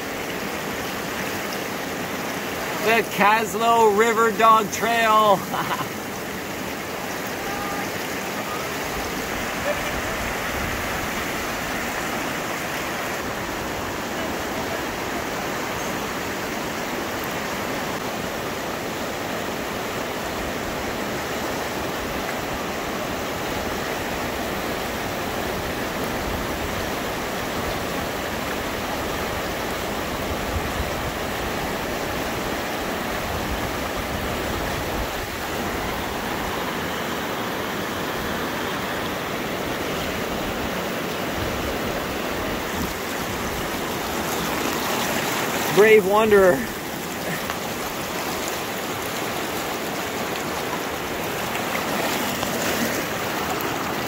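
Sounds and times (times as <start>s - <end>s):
river rushing over rocks: 0.0s - 54.0s.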